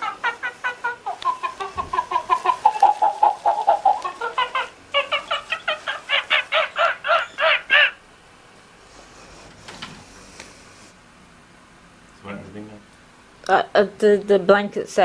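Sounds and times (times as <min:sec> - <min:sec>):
toy monkey chattering calls: 0:00.0 - 0:08.0.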